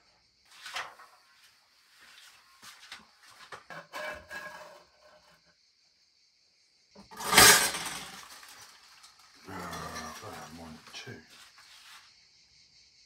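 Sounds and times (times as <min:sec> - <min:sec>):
light knocks and scrapes: 0:00.5 - 0:05.4
loud crash and clatter: 0:07.0 - 0:10.5.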